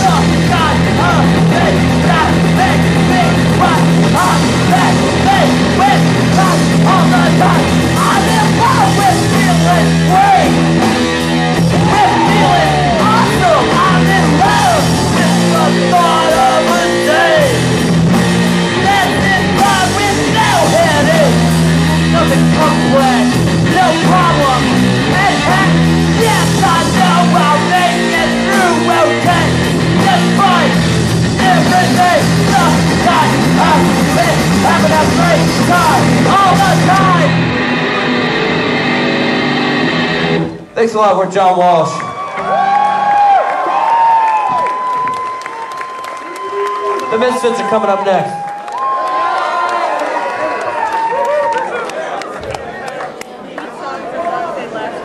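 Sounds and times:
electric guitar: 0.0s - 40.8s
bass guitar: 0.0s - 41.2s
drums: 0.0s - 49.0s
person singing into microphone: 11.7s - 17.8s, 18.7s - 37.3s.

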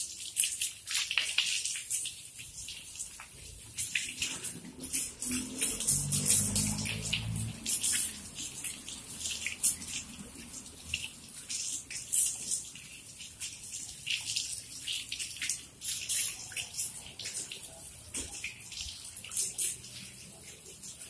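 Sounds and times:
water from hose splashing on dog: 0.0s - 21.0s
water splashing on tiled floor: 0.0s - 21.0s.

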